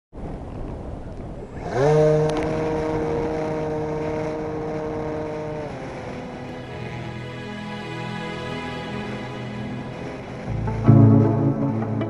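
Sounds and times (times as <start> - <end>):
model plane motor whining: 1.6 - 10.5.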